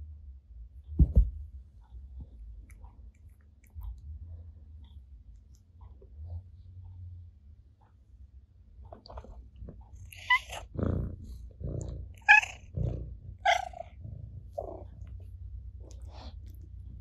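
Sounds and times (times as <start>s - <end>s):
cat purring: 8.8s - 17.0s
cat calls: 12.2s - 12.6s.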